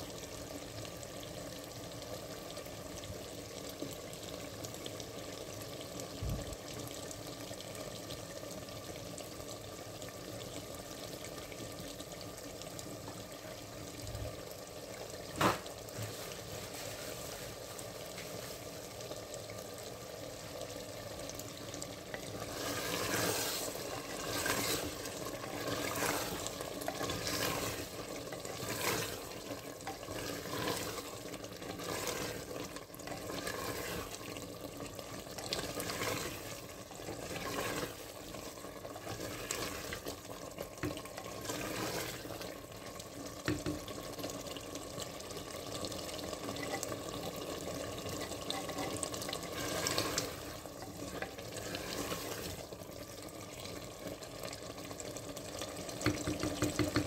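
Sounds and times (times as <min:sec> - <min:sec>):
curry sizzling and bubbling: 0:00.0 - 0:57.0
spatula scraping through curry: 0:22.4 - 0:32.5, 0:33.1 - 0:34.2, 0:35.6 - 0:38.1, 0:51.2 - 0:52.6.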